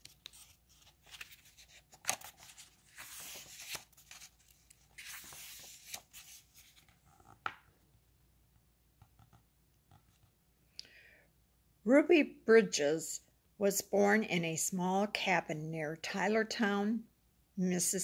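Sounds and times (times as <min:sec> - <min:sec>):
book pages turning: 0:00.0 - 0:07.7.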